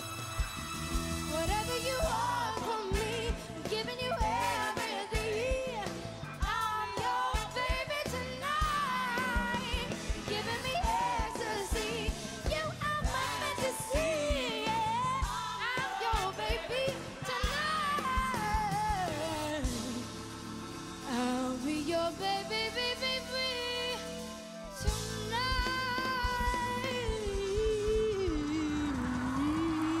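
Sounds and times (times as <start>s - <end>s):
steady drum beat: 0.0s - 21.3s
live band playing: 0.0s - 30.0s
woman singing into microphone: 1.3s - 20.2s, 21.0s - 30.0s.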